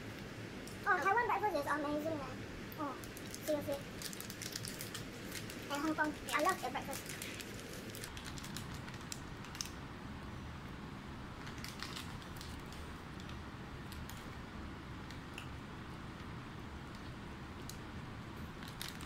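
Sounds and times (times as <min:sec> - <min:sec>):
low room hum: 0:00.0 - 0:19.0
paper wrappers crinkling: 0:03.0 - 0:09.8, 0:11.4 - 0:13.3, 0:18.6 - 0:19.0.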